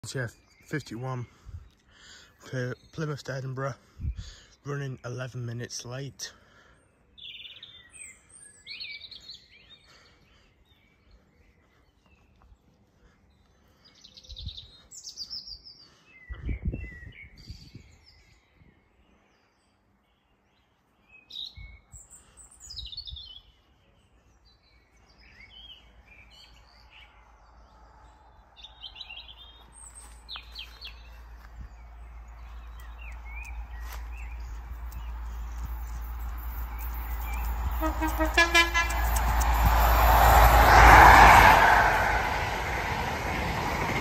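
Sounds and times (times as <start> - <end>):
small birds chirping: 0.0 - 40.5
approaching train rumble: 26.5 - 44.0.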